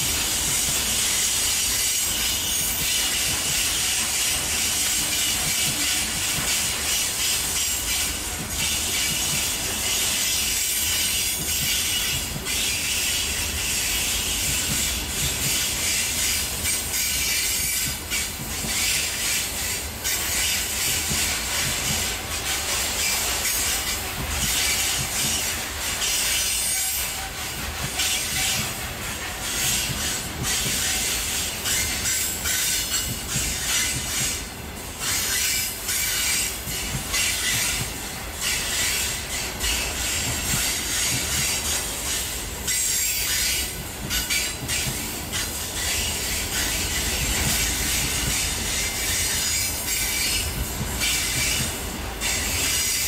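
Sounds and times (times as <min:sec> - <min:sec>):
freight train passing: 0:00.0 - 0:53.0.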